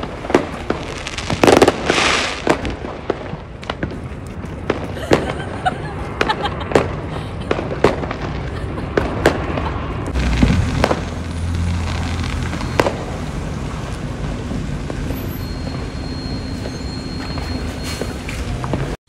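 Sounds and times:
distant fireworks bangs and crackle: 0.0s - 19.0s
fireworks sharp bangs: 0.0s - 19.0s
deep rumbling boom: 6.7s - 15.1s.

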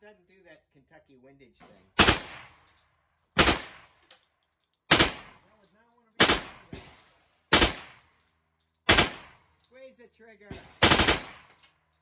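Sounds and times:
rifle shots echoing: 2.0s - 2.7s, 3.4s - 4.0s, 4.9s - 5.5s, 6.2s - 8.2s, 8.9s - 9.5s, 10.5s - 11.6s.

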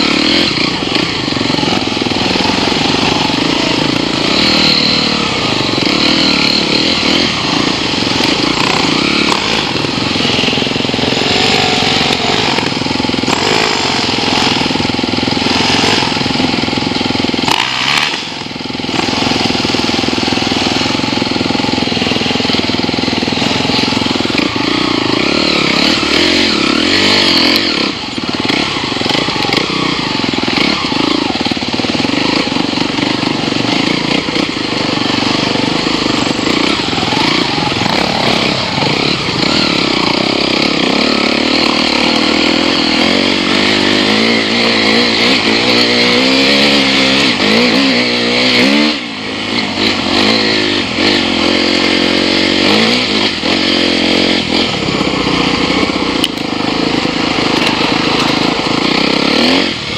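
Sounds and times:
dirt bike engines revving: 0.0s - 59.9s.

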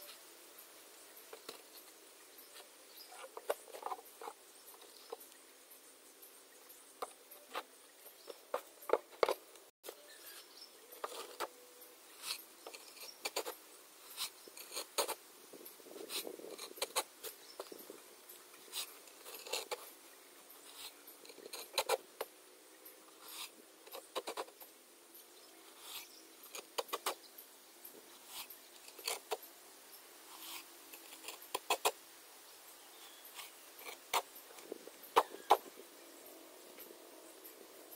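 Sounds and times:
hands scraping and tapping blocks: 8.3s - 9.7s.

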